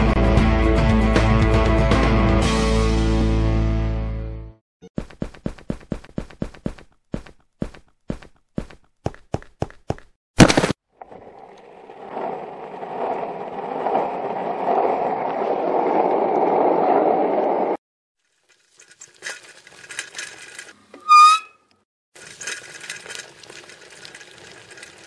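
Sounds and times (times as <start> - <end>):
skateboard wheels rolling: 11.0 - 17.8
bicycle clicking and rattling: 18.3 - 25.0
loud wavering squeak: 21.0 - 21.7.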